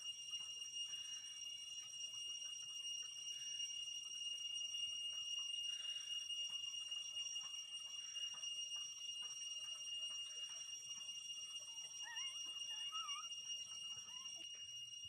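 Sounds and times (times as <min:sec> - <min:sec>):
faint high-pitched whine: 0:00.0 - 0:15.0
puppies squeaking: 0:12.0 - 0:13.3, 0:14.0 - 0:14.4
puppy whimpering: 0:12.0 - 0:13.3, 0:14.0 - 0:14.4.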